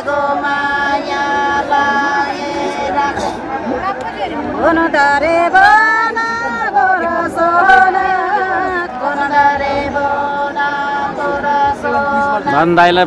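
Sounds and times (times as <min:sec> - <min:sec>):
woman singing folk song: 0:04.6 - 0:12.5.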